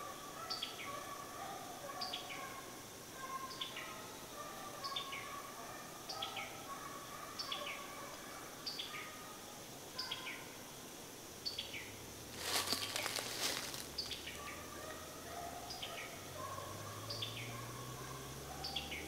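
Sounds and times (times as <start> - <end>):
rustle: 0.0 - 19.0
bird calling: 11.7 - 19.0.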